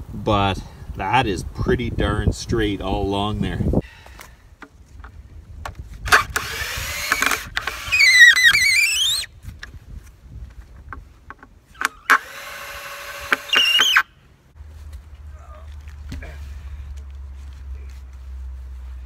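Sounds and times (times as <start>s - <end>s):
cordless drill driving screws: 6.1s - 9.3s, 11.8s - 14.0s.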